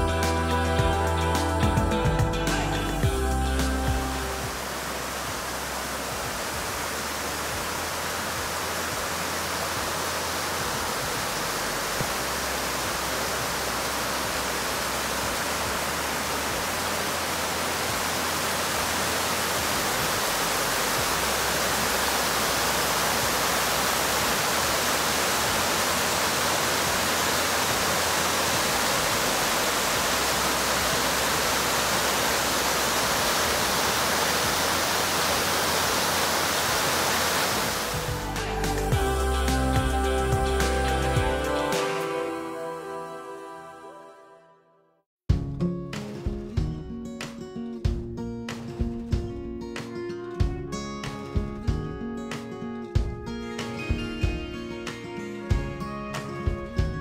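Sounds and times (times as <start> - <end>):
waterfall rushing: 0.0 - 43.8.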